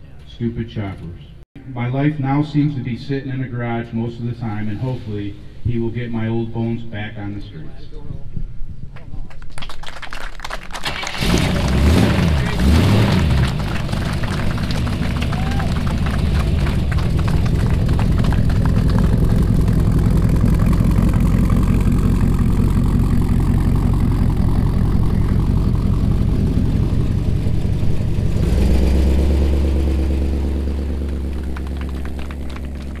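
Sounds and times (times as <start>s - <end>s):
car pulling away: 10.8s - 33.0s
car engine idling loudly: 11.0s - 33.0s.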